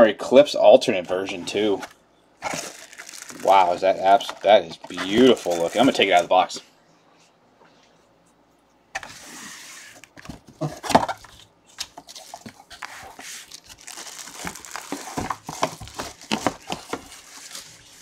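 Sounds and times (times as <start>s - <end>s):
plastic wrapping crinkling: 2.4s - 6.5s, 11.2s - 18.0s.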